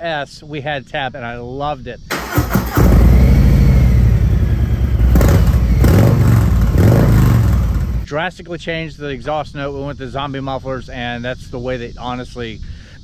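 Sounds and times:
motorcycle engine revving: 2.1 - 8.1
motorcycle engine running loudly: 2.6 - 8.0.

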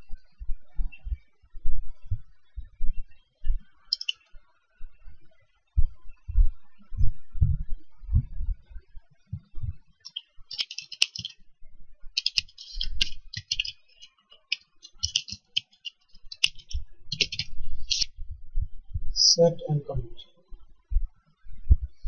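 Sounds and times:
computer keyboard typing: 10.1 - 11.4, 12.2 - 18.1.

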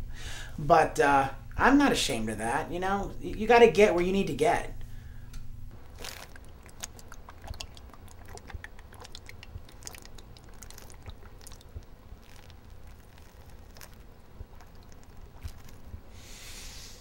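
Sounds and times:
man gulping liquid: 5.7 - 16.1.

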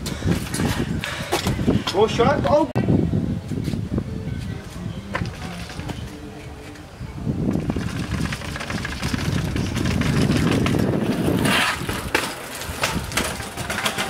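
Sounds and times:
bike knocks and rattles: 7.5 - 14.0
bike rumbling down concrete steps: 7.5 - 14.0.

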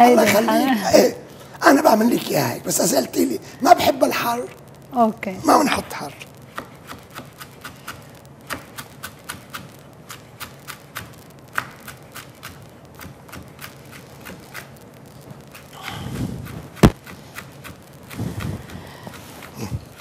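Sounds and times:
knife mincing on wooden board: 6.5 - 14.7, 15.5 - 20.0.

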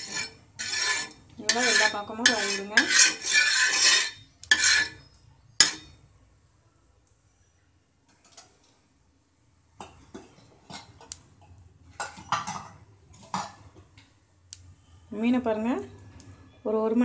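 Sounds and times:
metal utensil scraping on griddle: 0.0 - 6.0, 11.9 - 13.7.

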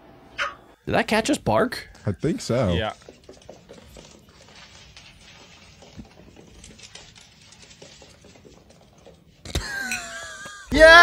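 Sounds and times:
kitten paws tapping on wooden floor: 2.8 - 9.5.

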